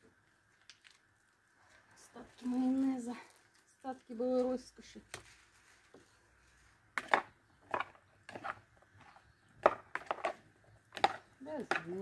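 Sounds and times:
potatoes stirred in plastic bowl: 0:07.0 - 0:12.0.

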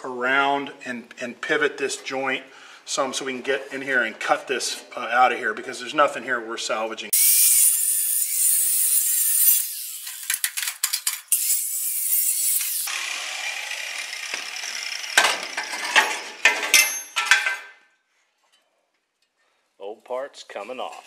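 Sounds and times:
angle grinder cutting metal: 0:07.2 - 0:16.5.

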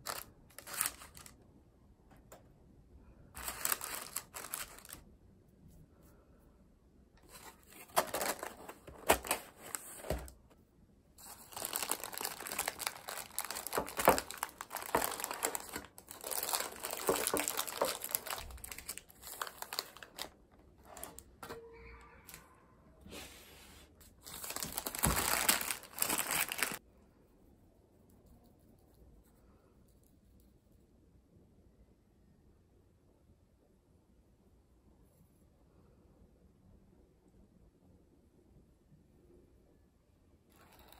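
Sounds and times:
paper crinkling and rustling: 0:00.0 - 0:01.4, 0:03.4 - 0:05.0, 0:07.2 - 0:10.4, 0:11.2 - 0:21.2, 0:24.1 - 0:26.8.

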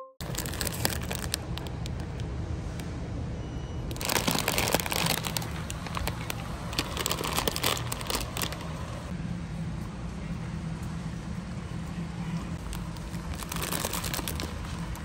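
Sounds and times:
plastic bag crinkling: 0:00.2 - 0:02.2, 0:03.9 - 0:09.1, 0:12.6 - 0:15.0
low store hum: 0:00.2 - 0:15.0.

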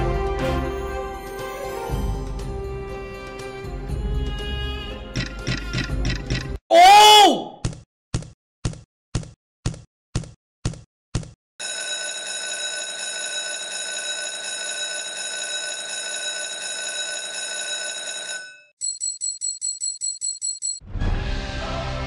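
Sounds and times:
slot machine bell ringing: 0:11.6 - 0:20.8.

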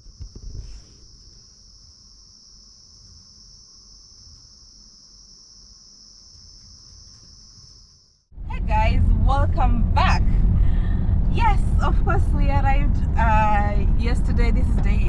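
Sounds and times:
insects trilling: 0:00.0 - 0:08.3
faint low rumble: 0:08.3 - 0:15.0.

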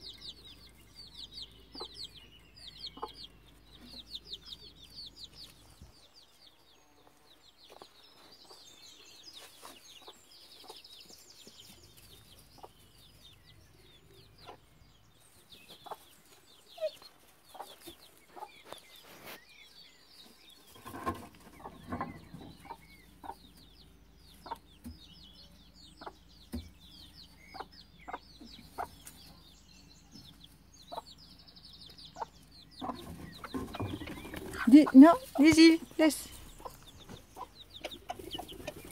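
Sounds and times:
chicks peeping: 0:00.0 - 0:38.9
hen clucking softly: 0:02.8 - 0:04.2, 0:20.8 - 0:23.7, 0:24.3 - 0:24.8, 0:27.5 - 0:29.4, 0:32.1 - 0:35.5, 0:36.1 - 0:38.9.

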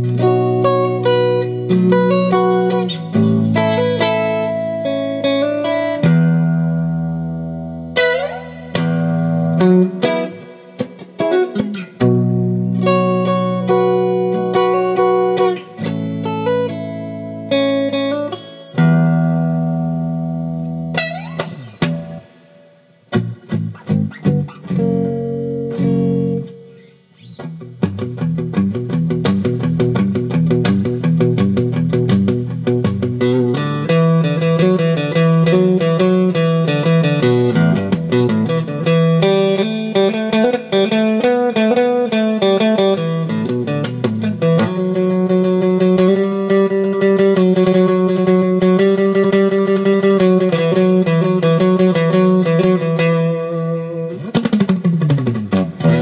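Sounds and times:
clean electric guitar chords: 0:00.0 - 0:56.0
fast picked guitar riff: 0:00.0 - 0:56.0.

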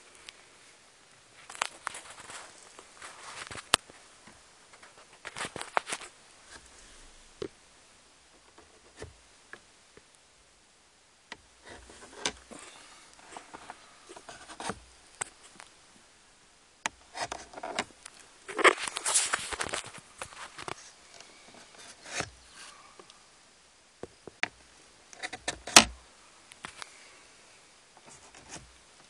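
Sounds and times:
rustling handling noises: 0:01.2 - 0:07.2, 0:11.6 - 0:15.8, 0:17.1 - 0:23.2.

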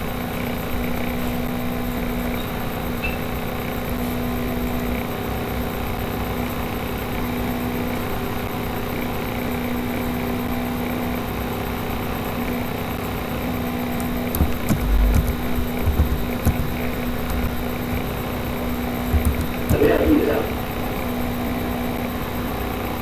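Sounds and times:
mechanical hum with drone: 0:00.0 - 0:23.0
sharp knocks and low thumps: 0:14.0 - 0:20.0.

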